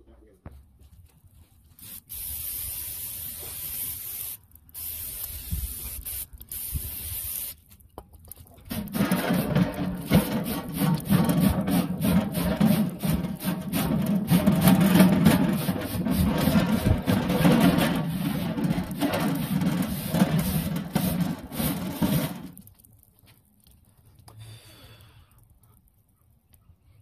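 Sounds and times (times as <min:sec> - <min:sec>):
brush scrubbing metal grill grate: 0:08.6 - 0:22.6.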